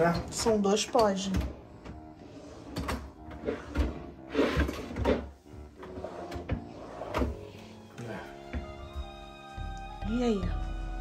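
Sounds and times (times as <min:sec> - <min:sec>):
drawers opening and shutting: 0:00.0 - 0:08.8
faint background music: 0:00.0 - 0:11.0.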